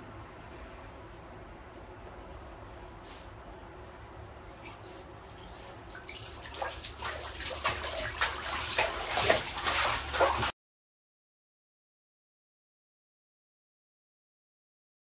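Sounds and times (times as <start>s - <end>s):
dog splashing in bathwater: 5.4s - 10.5s.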